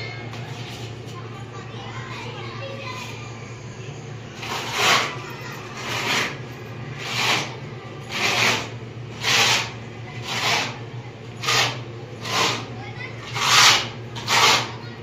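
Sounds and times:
putty knife scraping cement wall: 0:04.4 - 0:05.2, 0:05.8 - 0:06.4, 0:07.0 - 0:10.8, 0:11.4 - 0:14.8.

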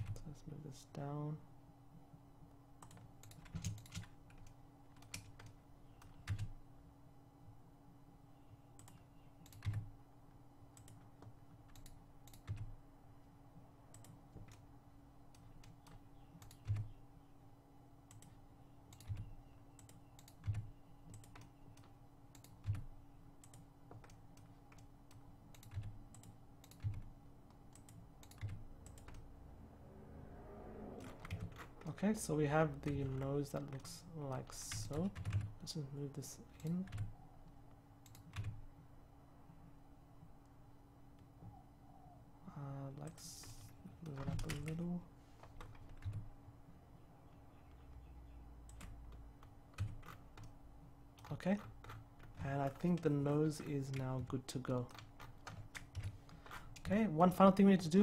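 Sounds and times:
faint steady hum: 0:00.0 - 0:58.0
keyboard and mouse clicking: 0:02.8 - 0:06.6, 0:08.8 - 0:09.9, 0:10.7 - 0:12.8, 0:13.9 - 0:14.7, 0:15.3 - 0:17.0, 0:18.1 - 0:29.3, 0:31.0 - 0:32.0, 0:32.8 - 0:35.5, 0:36.6 - 0:38.6, 0:43.1 - 0:44.9, 0:47.6 - 0:50.6.

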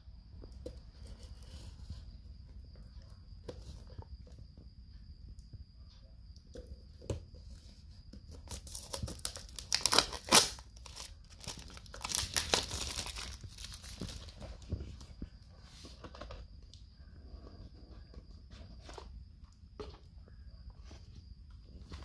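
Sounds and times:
plastic wrap crackling: 0:08.5 - 0:14.9.

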